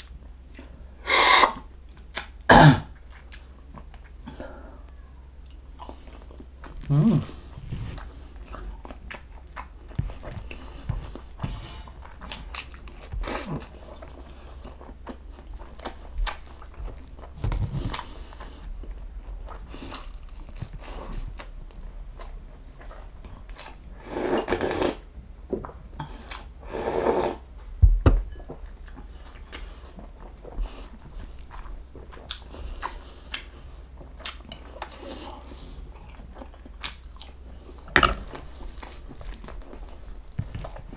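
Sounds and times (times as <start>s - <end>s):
person chewing and biting: 5.7s - 21.5s, 28.7s - 40.9s.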